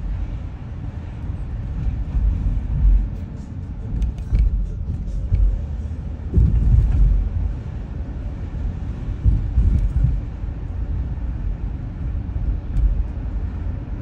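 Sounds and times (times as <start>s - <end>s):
tyre road rumble: 0.0s - 14.0s
car bumps: 1.7s - 7.7s, 9.1s - 10.4s.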